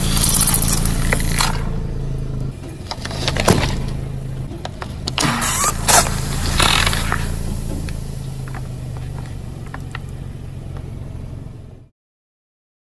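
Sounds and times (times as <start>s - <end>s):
car engine hum: 0.0s - 11.9s
plastic bottle bursting: 5.0s - 8.9s
fizzy cola spraying hiss: 5.3s - 9.0s.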